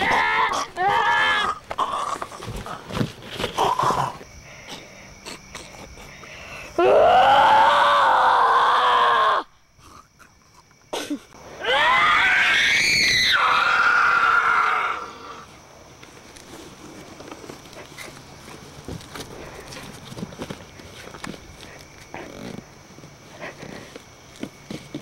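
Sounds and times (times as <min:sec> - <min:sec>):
person screaming: 0:00.0 - 0:01.6, 0:06.8 - 0:09.5, 0:11.6 - 0:15.2.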